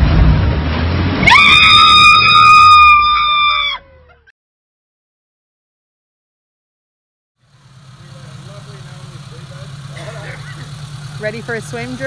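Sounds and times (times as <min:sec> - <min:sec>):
person screaming: 0:01.3 - 0:04.1
car engine running: 0:07.4 - 0:12.0.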